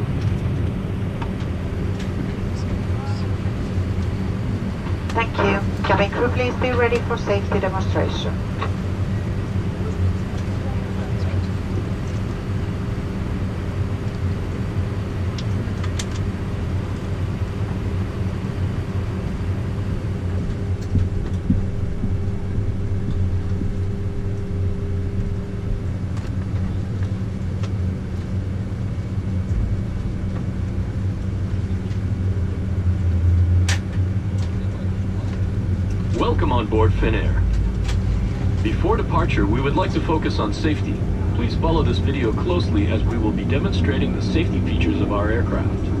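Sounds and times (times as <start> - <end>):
cabin air system: 0.0 - 46.0
higher hum: 0.0 - 46.0
jet engines idling: 0.0 - 46.0.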